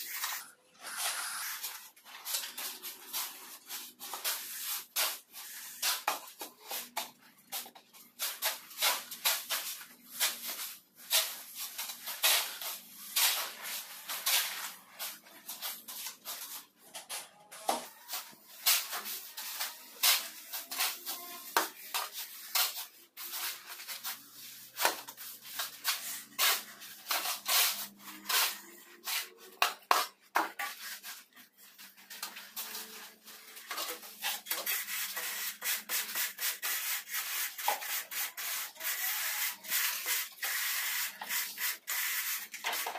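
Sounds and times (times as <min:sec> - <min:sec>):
shovels scraping mortar: 0:18.0 - 0:42.9.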